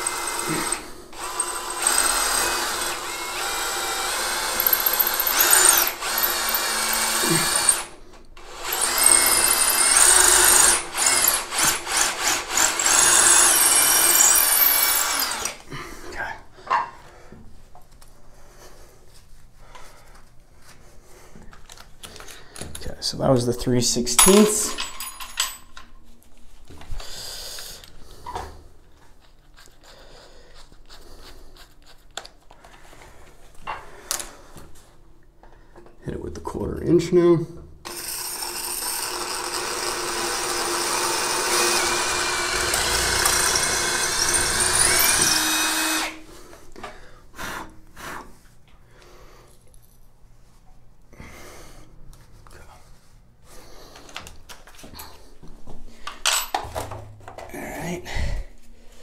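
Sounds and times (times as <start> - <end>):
tools rustling and clicking: 24.2 - 26.9
person breathing softly: 57.8 - 59.0.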